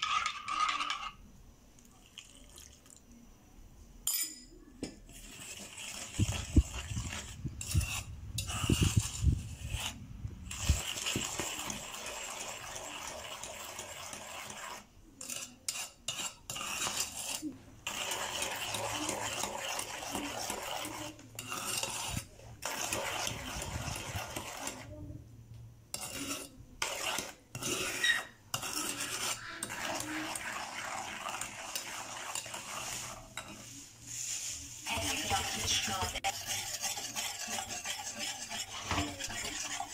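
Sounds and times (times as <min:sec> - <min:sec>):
spoon scraping and clinking bowl: 0:00.0 - 0:01.3, 0:04.1 - 0:24.9, 0:25.9 - 0:39.9.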